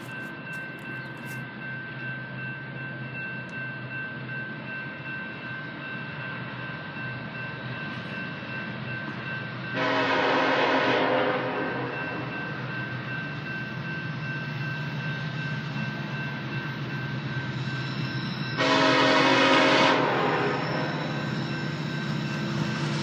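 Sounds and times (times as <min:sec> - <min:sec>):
train air horn blast: 0:09.8 - 0:11.9, 0:18.6 - 0:21.0.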